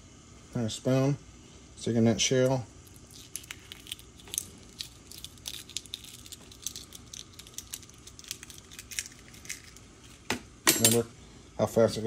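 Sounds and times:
egg shell crackling: 2.8s - 10.3s.

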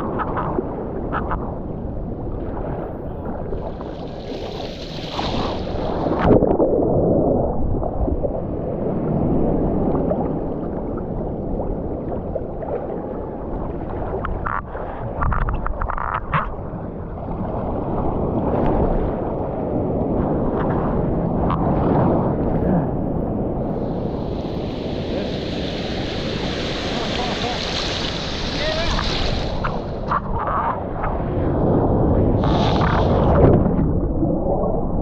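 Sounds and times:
muffled water sloshing and gurgling: 0.0s - 35.0s
sharp water splash: 3.9s - 8.2s, 24.3s - 30.2s, 32.4s - 33.8s
water rushing hiss: 23.8s - 30.0s, 32.4s - 33.3s.

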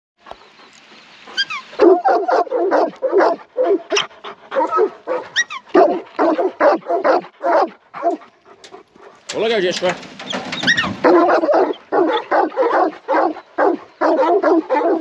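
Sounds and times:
dog yelping: 1.3s - 8.2s, 10.3s - 15.0s
dog barking: 1.8s - 8.3s, 11.0s - 15.0s.

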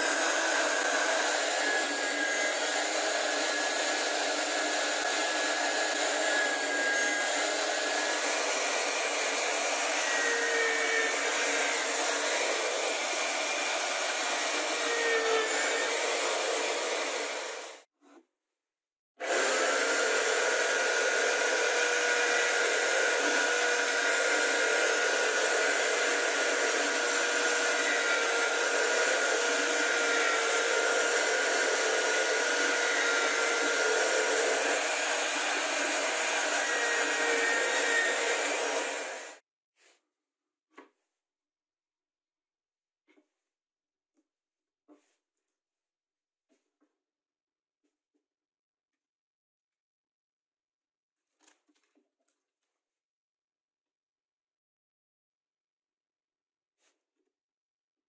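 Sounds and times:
drill press motor whine: 19.3s - 39.4s.

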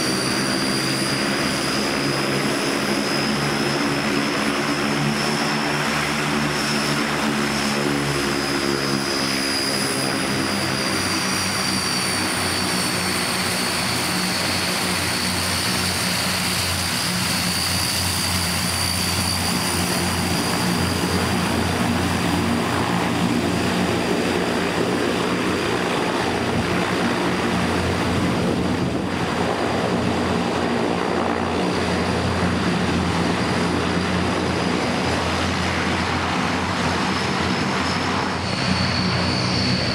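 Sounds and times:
high turbine whine: 0.0s - 39.9s
propeller drone: 0.0s - 39.9s.

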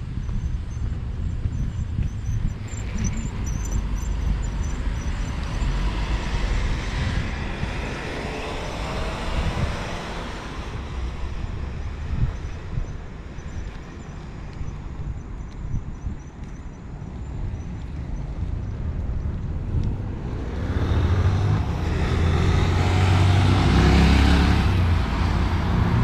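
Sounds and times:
road traffic: 0.0s - 26.0s
car passing: 2.8s - 12.1s, 20.0s - 26.0s.

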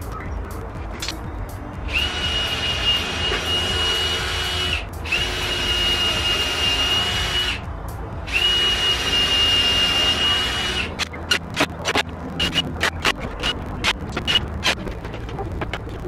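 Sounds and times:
electric drill whine: 1.9s - 7.6s, 8.3s - 10.9s.

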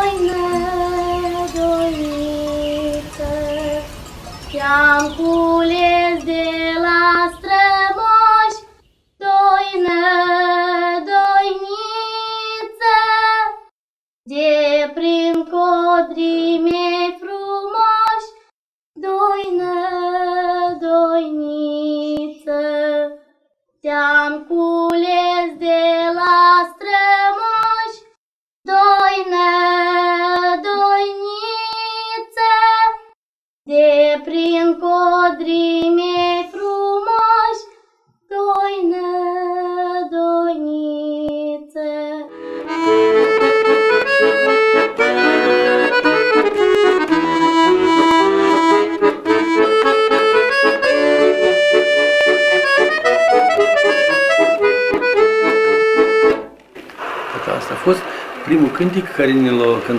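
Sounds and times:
girls singing unaccompanied: 0.0s - 3.9s, 4.5s - 13.6s
button accordion folk tune: 42.3s - 56.6s.

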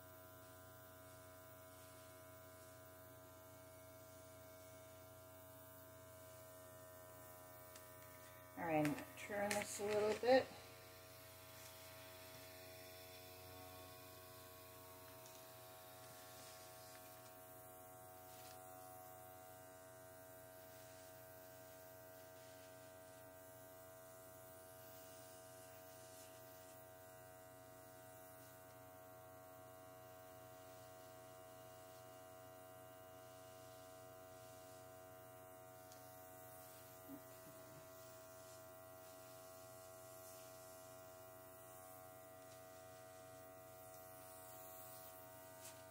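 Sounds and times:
small compressor motor humming: 0.0s - 45.9s.

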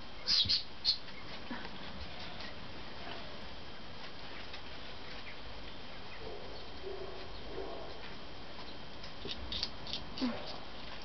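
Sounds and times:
animal eating with small crunches: 4.0s - 11.0s.

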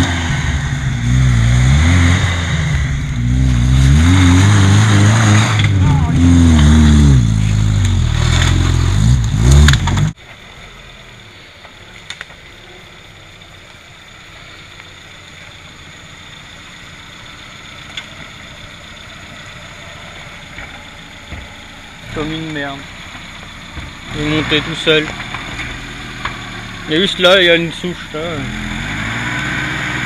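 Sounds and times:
engine revving hard: 0.0s - 10.2s, 24.0s - 30.0s
quiet steady engine: 0.0s - 30.0s
faint clicks: 11.6s - 12.5s.

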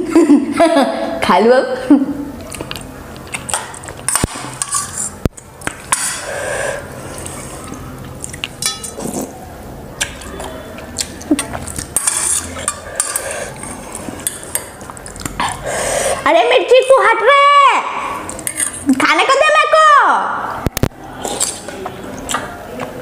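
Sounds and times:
noodles slurped and chewed: 2.4s - 5.7s, 6.3s - 9.4s, 21.2s - 23.0s
metal spoon clinking in steel bowl: 8.6s - 9.2s.

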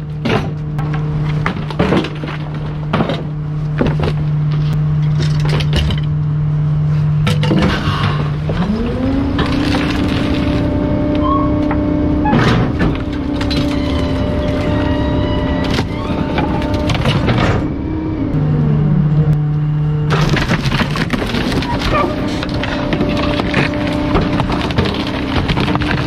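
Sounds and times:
waste crunching in compactor: 0.0s - 18.5s, 19.5s - 26.0s
truck engine revving: 7.7s - 26.0s.

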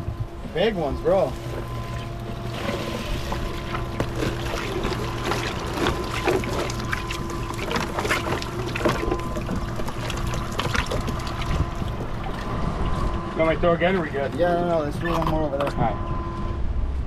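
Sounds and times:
steady hum: 0.0s - 17.0s
fish flapping and splashing: 1.4s - 13.0s.

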